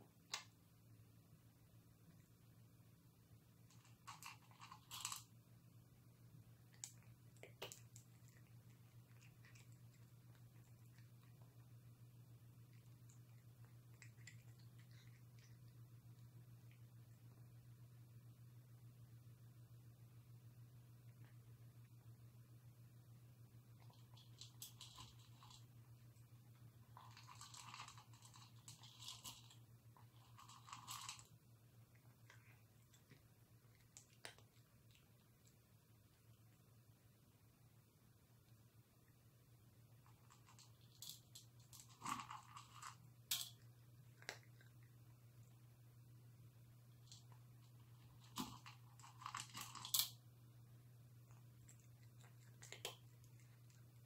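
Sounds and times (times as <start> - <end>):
faint low hum: 0.0 - 54.0
cat crunching dry food: 3.6 - 5.4, 6.4 - 17.4, 23.7 - 36.2, 40.0 - 45.6, 46.9 - 50.2, 51.2 - 54.0.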